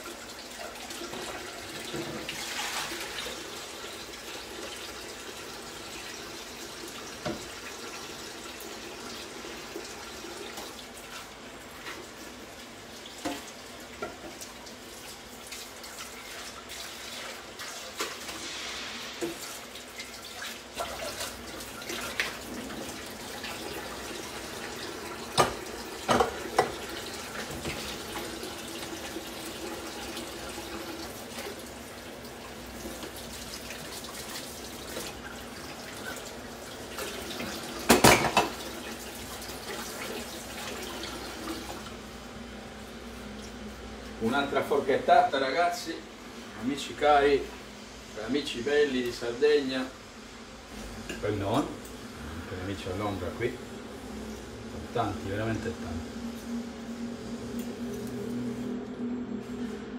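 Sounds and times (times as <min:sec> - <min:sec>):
steady background hiss: 0:16.8 - 0:59.9.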